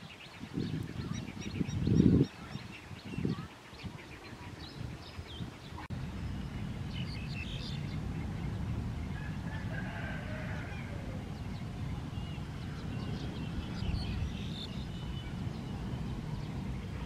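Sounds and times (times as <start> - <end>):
starlings calling: 0.0 - 17.0
low rumble: 5.9 - 17.0.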